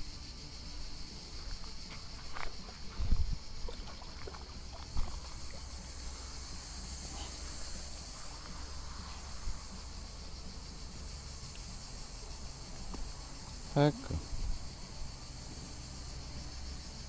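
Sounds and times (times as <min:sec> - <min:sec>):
insects chorus: 0:00.0 - 0:17.0
wind rumble on microphone: 0:02.8 - 0:03.8.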